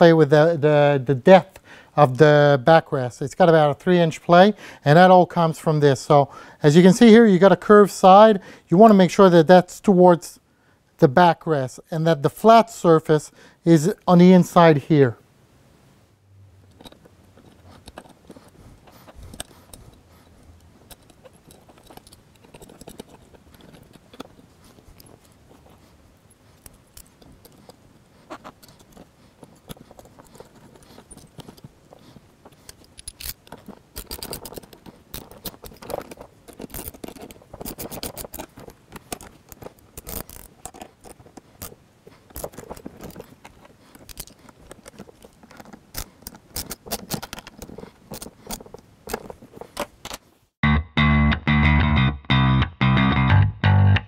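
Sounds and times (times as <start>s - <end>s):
metal hardware clinking and scraping: 16.6s - 50.2s.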